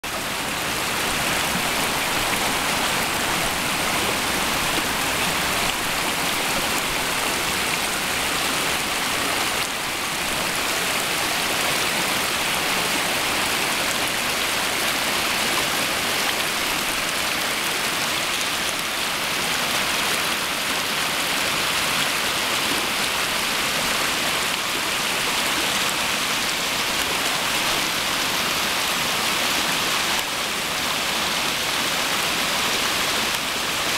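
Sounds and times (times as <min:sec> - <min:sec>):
creek rushing over rock: 0:00.0 - 0:33.9.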